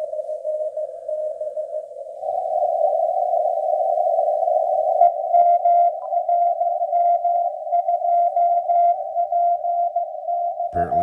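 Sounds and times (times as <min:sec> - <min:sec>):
morse code tone: 0:10.8 - 0:11.0.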